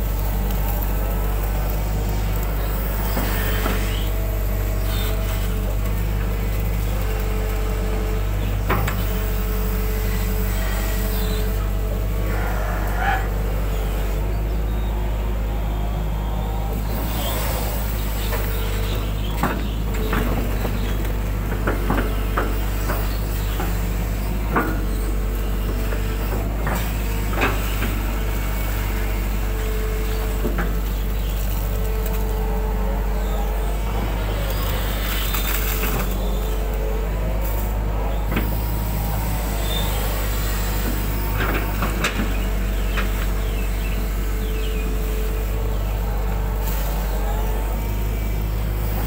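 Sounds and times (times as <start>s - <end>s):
excavator diesel engine: 0.0s - 49.0s
hydraulic whine: 0.0s - 49.0s.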